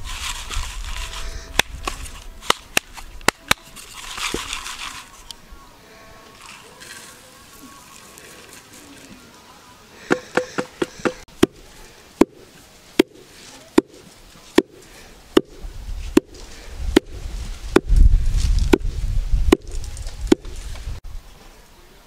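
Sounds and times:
pestle pounding in wooden mortar: 10.1 - 11.6, 12.2 - 12.4, 13.0 - 14.8, 15.4 - 17.9.

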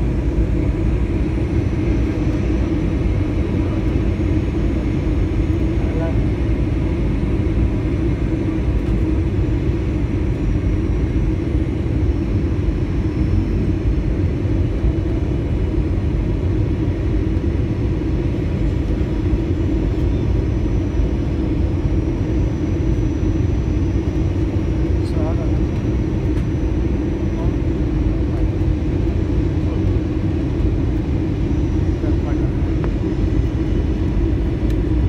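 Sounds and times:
airliner cabin engine rumble: 0.0 - 35.0.

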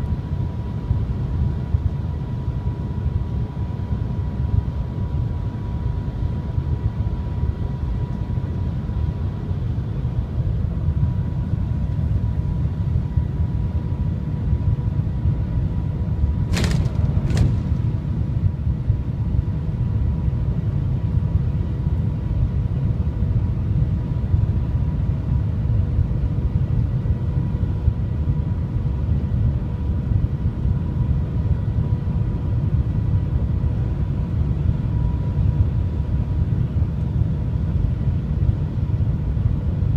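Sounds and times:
train cabin rumble: 16.2 - 18.7.

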